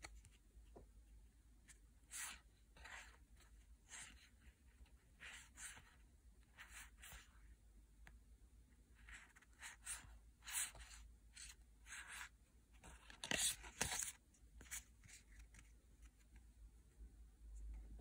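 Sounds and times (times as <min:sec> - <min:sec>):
cards and packaging rustling: 0:11.4 - 0:16.4.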